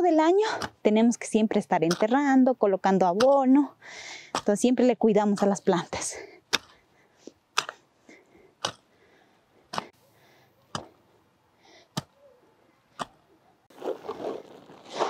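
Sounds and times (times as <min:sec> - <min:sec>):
hoe chopping into soil: 0:01.8 - 0:02.2, 0:03.2 - 0:03.5, 0:04.3 - 0:05.8, 0:06.5 - 0:06.8, 0:07.5 - 0:07.8, 0:08.6 - 0:08.8.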